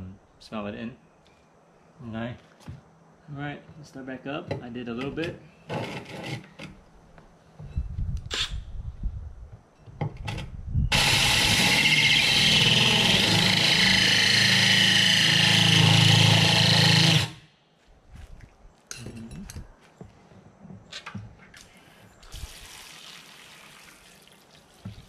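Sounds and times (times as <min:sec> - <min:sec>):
drill hole saw grinding glass: 0:10.9 - 0:17.4.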